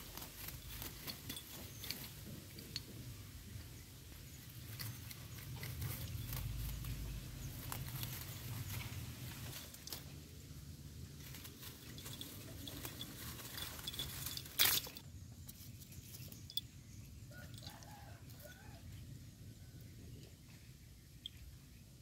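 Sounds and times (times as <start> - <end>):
dry leaves rustling: 0.0 - 3.0, 4.0 - 16.6.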